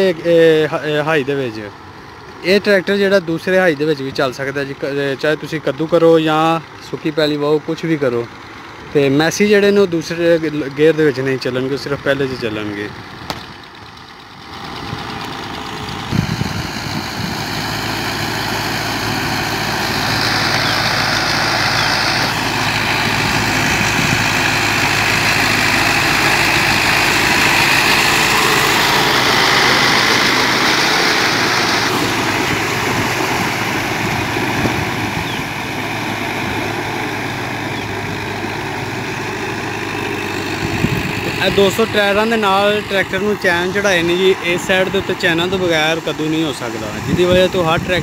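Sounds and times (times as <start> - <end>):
tractor diesel engine running: 0.0 - 48.0
churned water and mud rushing: 15.0 - 48.0.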